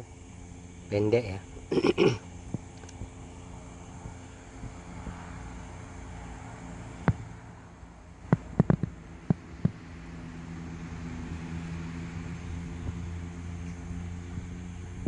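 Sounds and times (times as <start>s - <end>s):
steady low hum: 0.0s - 15.0s
sharp clicks: 2.6s - 3.1s.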